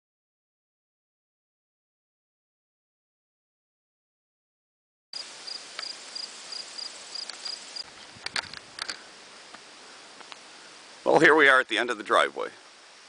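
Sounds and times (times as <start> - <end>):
cricket chirping: 5.2 - 7.9.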